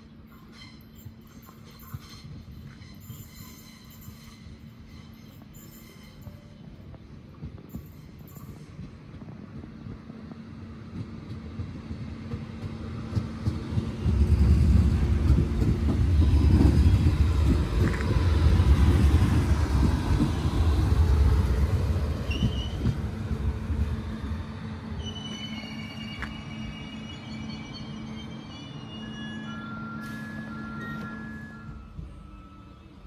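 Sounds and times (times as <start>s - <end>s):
train wheels rumbling on rails: 0.0s - 33.0s
high wheel squeals: 0.3s - 6.7s, 22.2s - 23.0s, 23.9s - 33.0s.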